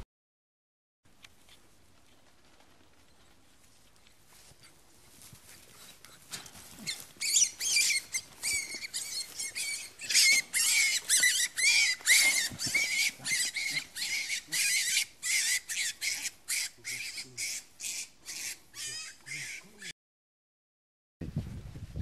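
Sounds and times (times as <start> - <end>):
rabbit screaming: 6.8 - 19.9.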